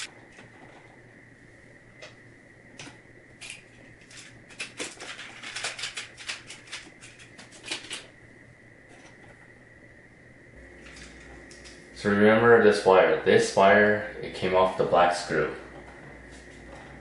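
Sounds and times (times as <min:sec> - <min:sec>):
faint high whine: 0:00.0 - 0:17.0
wires and plastic handled: 0:02.8 - 0:08.1.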